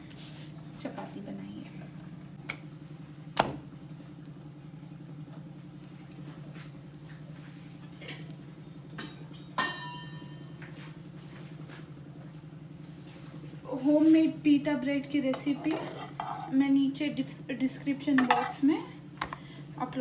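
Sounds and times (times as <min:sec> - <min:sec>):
steady low hum: 0:00.0 - 0:20.0
sharp metallic clink: 0:09.6 - 0:10.2.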